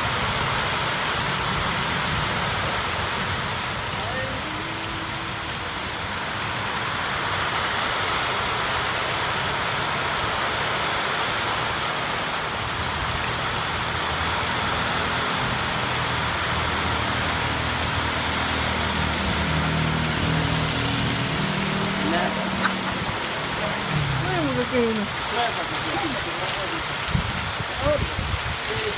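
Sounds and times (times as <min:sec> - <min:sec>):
heavy rain pouring: 0:00.0 - 0:28.9
water streaming off roof: 0:00.0 - 0:28.9
low engine hum: 0:12.0 - 0:25.3.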